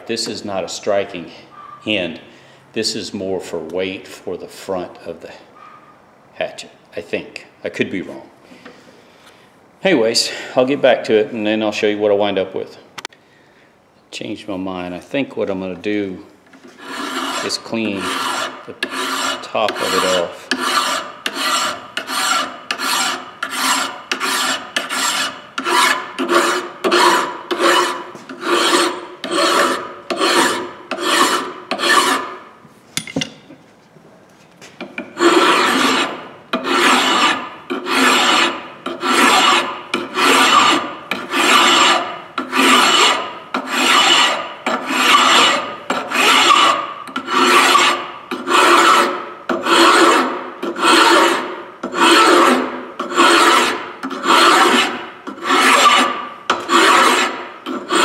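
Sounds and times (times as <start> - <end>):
file rasping on metal: 16.6 - 32.4, 34.9 - 58.0.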